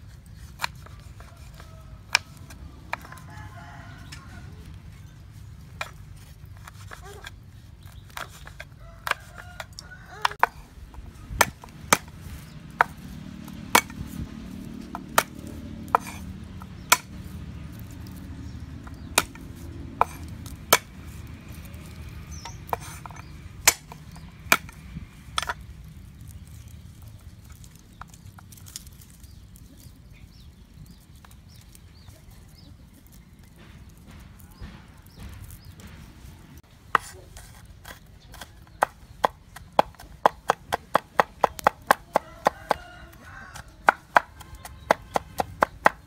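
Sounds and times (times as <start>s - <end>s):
knife chopping on wooden board: 11.3s - 25.6s, 33.6s - 46.0s.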